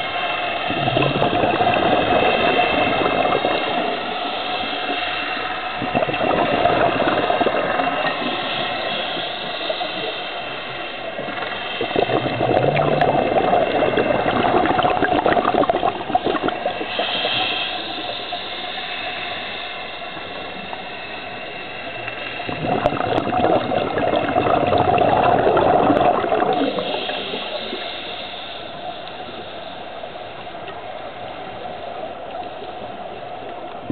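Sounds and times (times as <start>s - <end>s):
regulator inhalation hiss: 0.0s - 33.6s
steady underwater noise: 0.0s - 33.9s
exhaled bubbles underwater: 0.7s - 5.1s, 5.7s - 10.2s, 11.0s - 18.5s, 22.0s - 28.4s, 32.2s - 33.9s.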